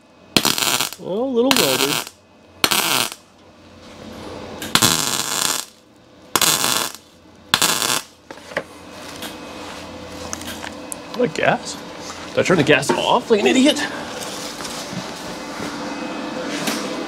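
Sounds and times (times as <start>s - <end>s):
welder buzzing: 0.0s - 3.3s, 4.6s - 8.3s.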